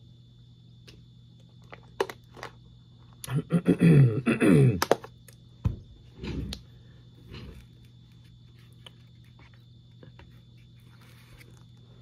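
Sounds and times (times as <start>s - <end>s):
man clearing throat: 3.2s - 4.9s.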